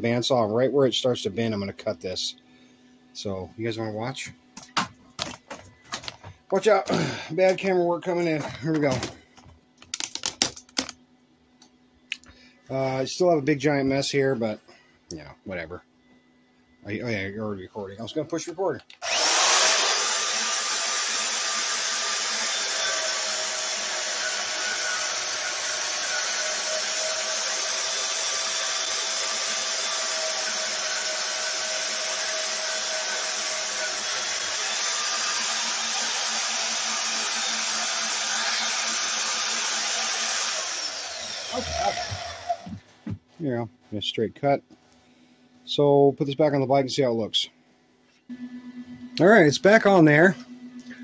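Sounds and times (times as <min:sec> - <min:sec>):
bandsaw cutting metal: 0:19.0 - 0:42.8.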